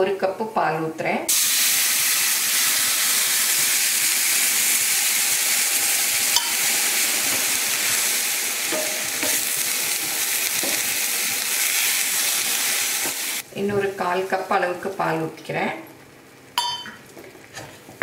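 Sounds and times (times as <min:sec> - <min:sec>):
milk sizzling in a hot pan: 0:01.3 - 0:13.4.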